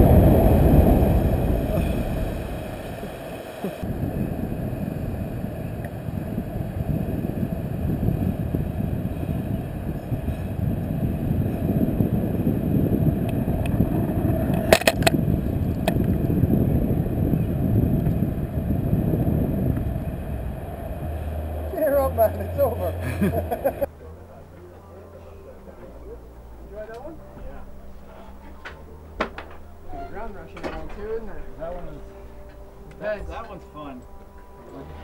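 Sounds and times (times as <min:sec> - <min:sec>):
wind buffeting microphone: 0:00.0 - 0:23.9.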